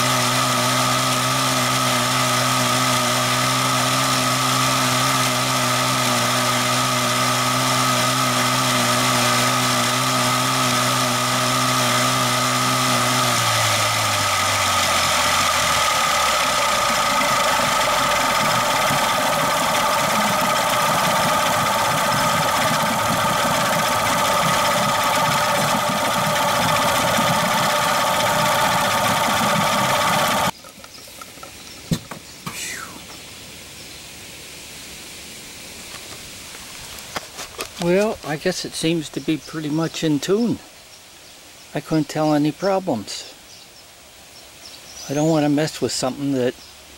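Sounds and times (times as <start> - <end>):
outboard engine running: 0.0 - 30.6
propeller churning water: 0.0 - 30.6.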